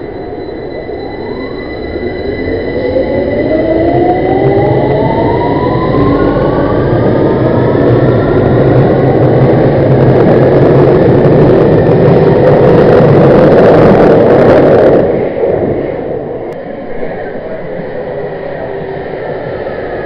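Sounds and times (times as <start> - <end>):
electric motor whine rising: 0.0 - 15.1
rumble of wheels on rail: 0.0 - 20.0.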